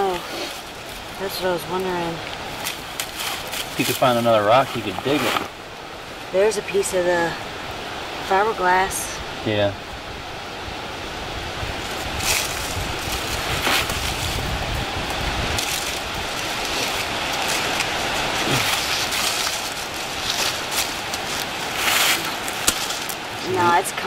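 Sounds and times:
hands digging in leaf litter: 0:00.0 - 0:05.5, 0:11.8 - 0:24.0.

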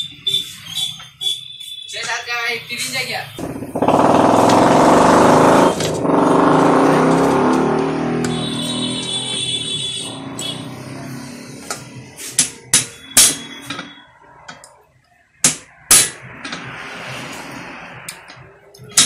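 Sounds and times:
engine hum: 0:03.4 - 0:09.4.

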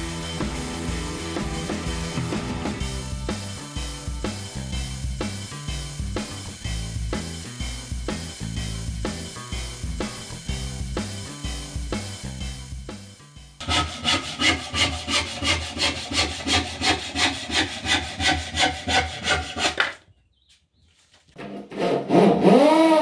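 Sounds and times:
hand saw cutting wood: 0:13.6 - 0:20.0, 0:21.4 - 0:23.0.

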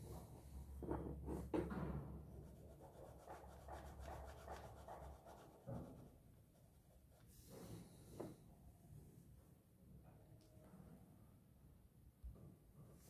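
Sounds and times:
pen scratching on paper: 0:02.5 - 0:06.0.

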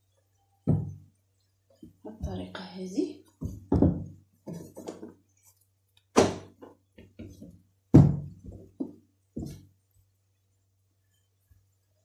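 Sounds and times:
faint electrical hum: 0:00.0 - 0:12.0
dough thunking on worktop: 0:03.4 - 0:04.2, 0:06.1 - 0:09.6.

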